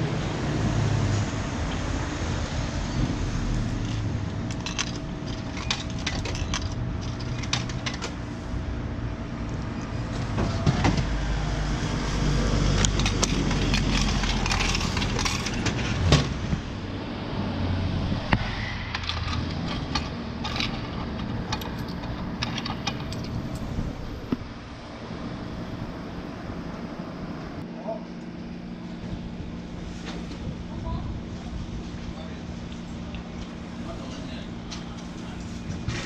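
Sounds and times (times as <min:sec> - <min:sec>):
heavy vehicle passing rumble: 0:00.0 - 0:27.7
road traffic: 0:00.0 - 0:36.0.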